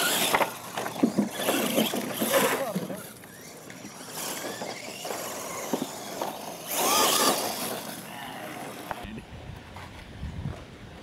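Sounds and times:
toy truck motors whining: 0.0s - 9.1s
tyres scrabbling on loose dirt: 0.0s - 9.1s.

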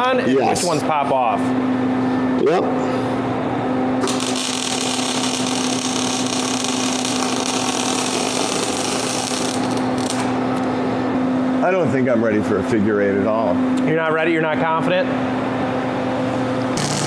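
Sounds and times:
welding arc crackling: 4.0s - 10.7s, 16.8s - 17.0s.

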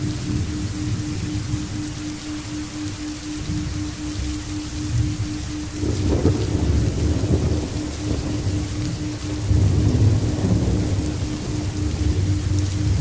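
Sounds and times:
faint low pulsing tone: 0.0s - 13.0s
steady rain: 0.0s - 13.0s
rolling thunder: 5.8s - 13.0s.

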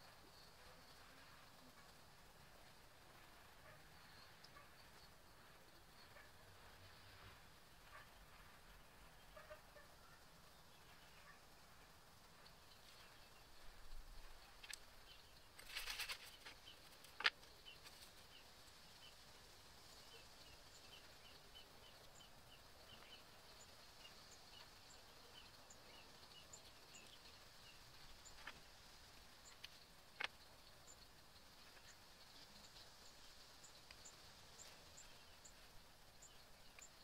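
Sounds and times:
rustle of pine needles: 10.2s - 22.2s.

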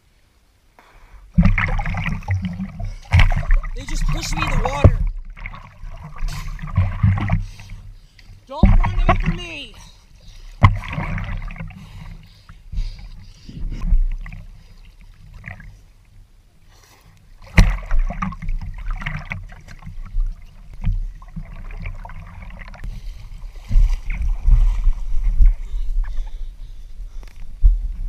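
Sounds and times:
water splashing and sloshing: 1.2s - 28.0s
wind rumbling on microphone: 22.8s - 28.0s.

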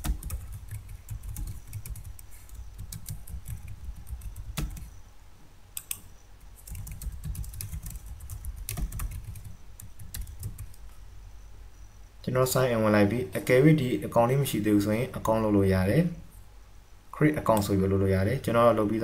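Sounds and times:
keyboard typing: 0.0s - 4.9s, 5.8s - 10.8s.

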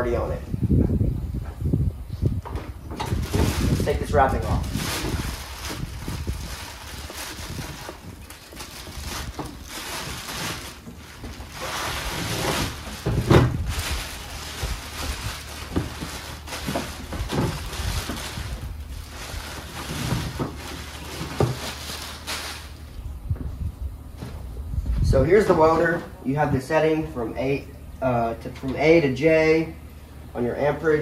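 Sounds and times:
plastic wrapping rustling: 3.0s - 23.0s.

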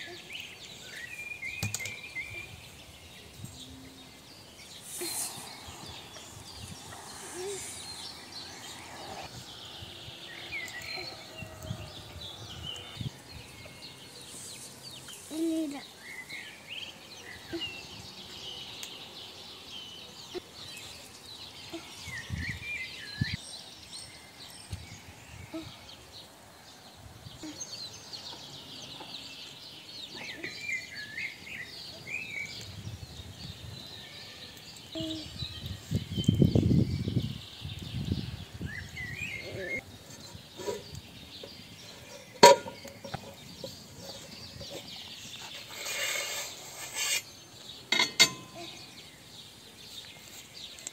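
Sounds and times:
small birds chirping: 0.0s - 50.9s.

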